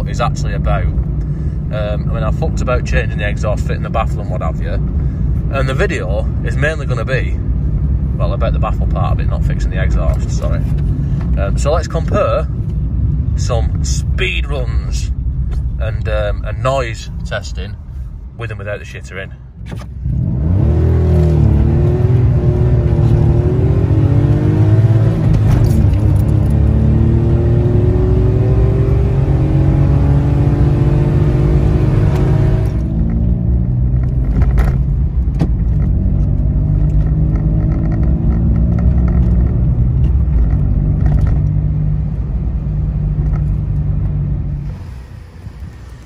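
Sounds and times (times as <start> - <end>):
car engine accelerating: 19.8 - 46.0.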